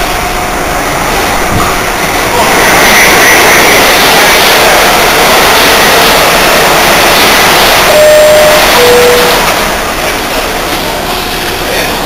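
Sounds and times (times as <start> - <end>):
train and station rumble: 0.0 - 12.0
two-tone door chime: 7.9 - 9.5.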